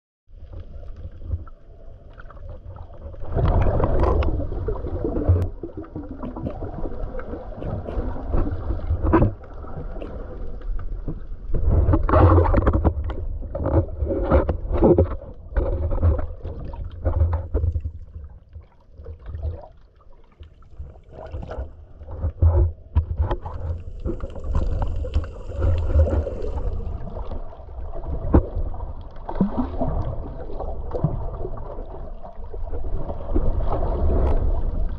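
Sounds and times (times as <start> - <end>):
underwater water rumbling and gurgling: 0.3 - 34.9
sharp underwater clicks and knocks: 5.2 - 19.6, 21.1 - 27.1.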